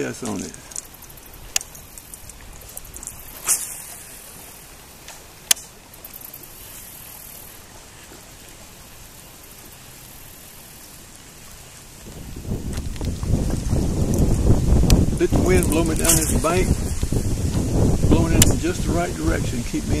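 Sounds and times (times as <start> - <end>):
wind on open water: 0.0 - 20.0
short swishing burst: 3.3 - 4.4.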